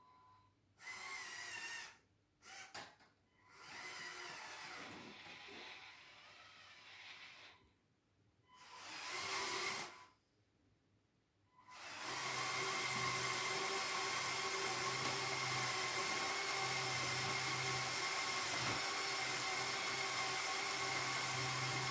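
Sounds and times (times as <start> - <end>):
toy electric motors whirring: 3.5 - 7.6.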